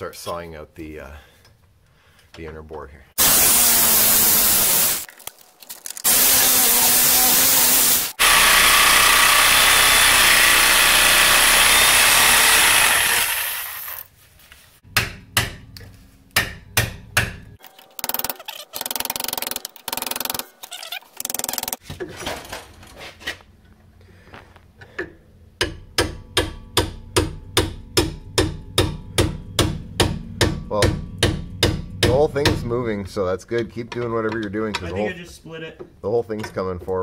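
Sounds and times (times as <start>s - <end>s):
angle grinder cutting steel: 6.1s - 14.1s.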